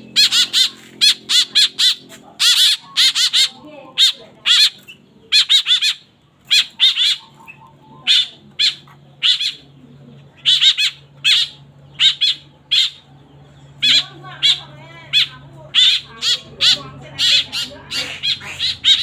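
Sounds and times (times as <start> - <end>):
fledglings giving harsh calls: 0.0 - 19.0.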